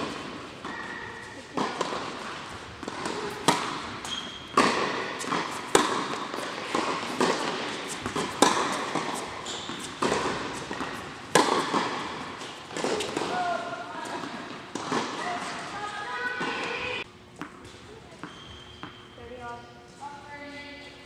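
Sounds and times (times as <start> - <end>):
racket striking tennis ball: 0.0 - 15.8
tennis ball bouncing: 0.0 - 16.8.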